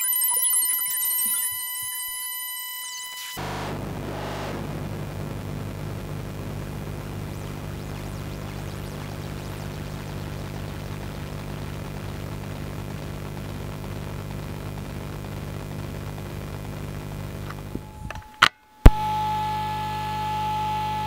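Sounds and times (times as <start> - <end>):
high steady synth tone: 0.0 - 11.2
low synthesizer drone with hiss: 2.8 - 18.2.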